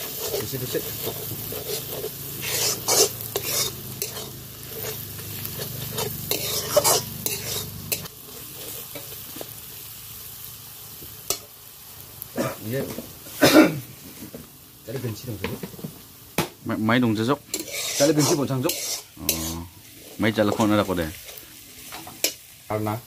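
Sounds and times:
metal spatula scraping a wok: 0:00.0 - 0:09.6, 0:17.4 - 0:22.5
meat sizzling in a wok: 0:00.0 - 0:23.0.

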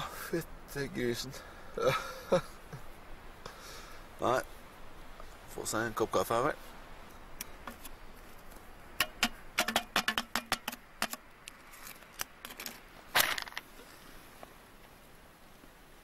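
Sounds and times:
rustling scrape: 0:11.6 - 0:14.1.

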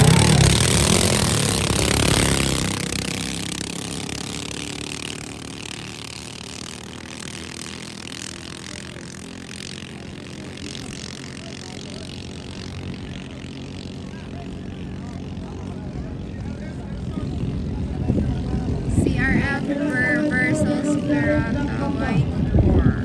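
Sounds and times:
boat engines running hard: 0:00.0 - 0:23.0.

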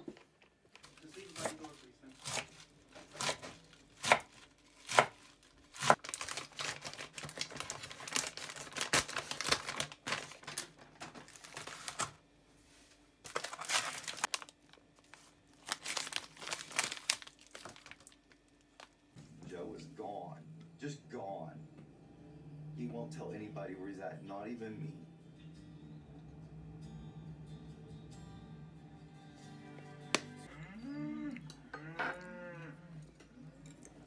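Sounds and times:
plastic packaging crinkling: 0:00.1 - 0:12.2, 0:13.2 - 0:19.0
knife chopping on wooden board: 0:02.2 - 0:05.2.

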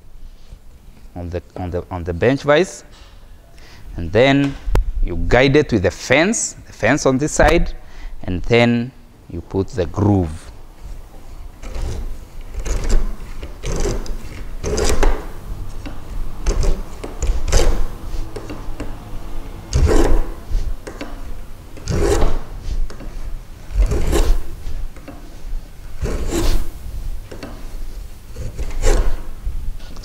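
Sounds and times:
plane cutting wood: 0:11.6 - 0:25.2, 0:26.0 - 0:26.8, 0:28.3 - 0:29.3.

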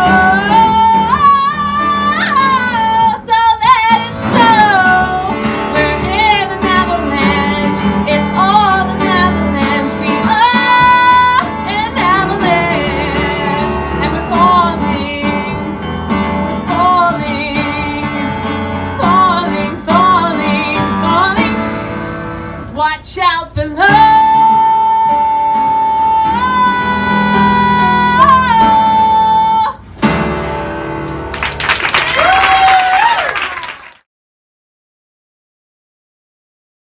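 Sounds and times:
woman singing: 0:00.0 - 0:21.7, 0:22.7 - 0:29.8
piano accompaniment: 0:00.0 - 0:22.9, 0:23.7 - 0:32.1.

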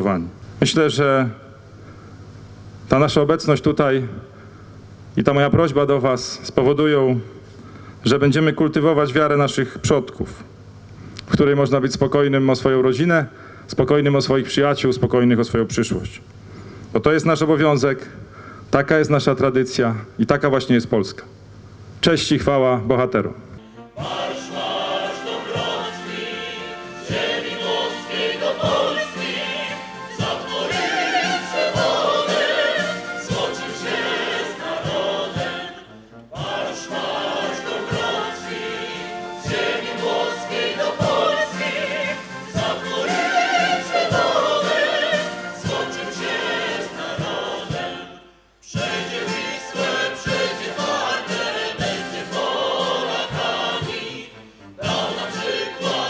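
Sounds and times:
choir singing with music: 0:23.6 - 0:56.0.

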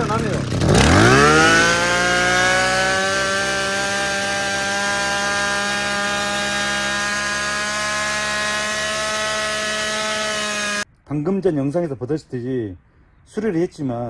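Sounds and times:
brush cutter engine whining: 0:00.0 - 0:10.8.

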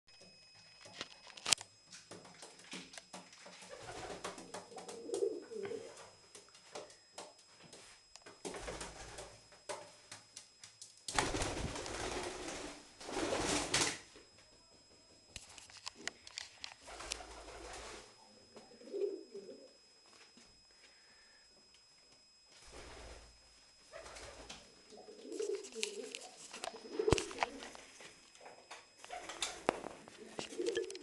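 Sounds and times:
pigeon cooing: 0:03.6 - 0:06.0, 0:18.2 - 0:19.8, 0:23.9 - 0:27.7, 0:29.0 - 0:31.0.

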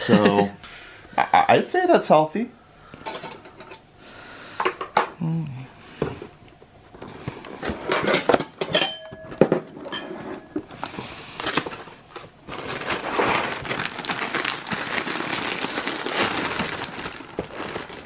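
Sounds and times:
spoons and bowls clinking: 0:07.9 - 0:09.3
plastic bag crinkling: 0:11.4 - 0:18.0.

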